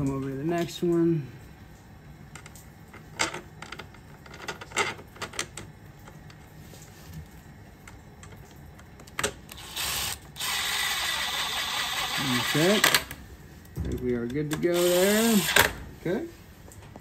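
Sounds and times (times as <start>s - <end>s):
cordless impact driver driving screw: 9.6s - 13.0s, 14.8s - 15.7s.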